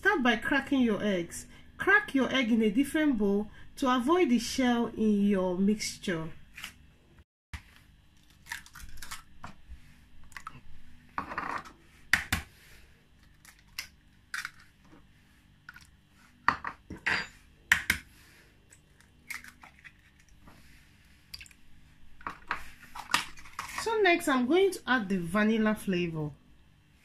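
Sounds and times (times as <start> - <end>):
dishes clinking: 16.5 - 17.4.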